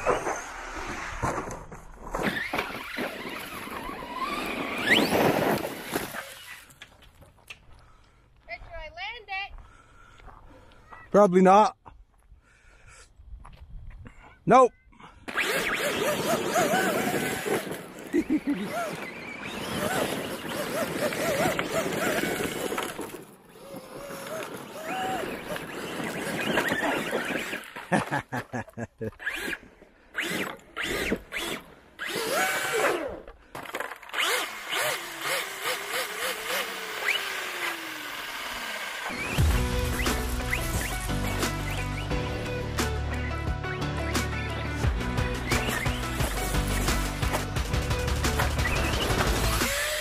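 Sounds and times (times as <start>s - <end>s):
tyres scrabbling on gravel: 1.4s - 7.5s, 15.4s - 28.0s
electric motor whining: 2.3s - 6.6s, 15.3s - 27.7s, 30.2s - 33.2s, 34.1s - 42.3s, 45.3s - 50.0s.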